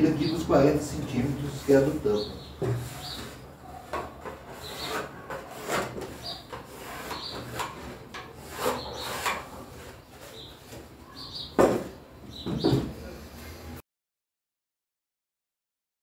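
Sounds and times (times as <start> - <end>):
boards and tools handled: 1.1 - 13.0
pencil scratching on wood: 1.3 - 10.9.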